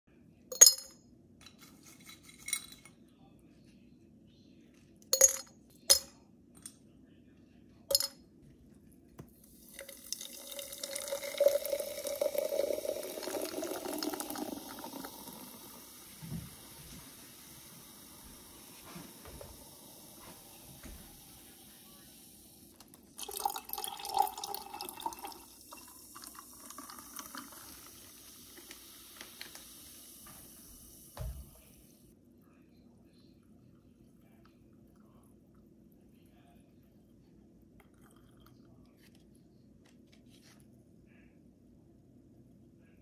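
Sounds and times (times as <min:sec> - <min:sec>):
sparkling water pouring: 0:09.4 - 0:31.9
carbonated fizz: 0:09.5 - 0:22.5, 0:23.2 - 0:31.3.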